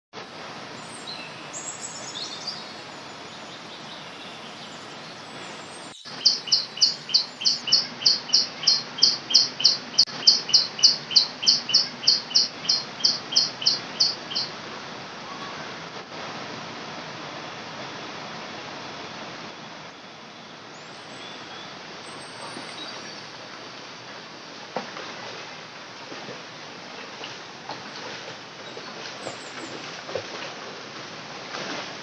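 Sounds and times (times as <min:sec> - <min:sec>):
rocky river stream rushing: 0:00.2 - 0:32.0
bird calling repeated high notes: 0:04.4 - 0:14.5.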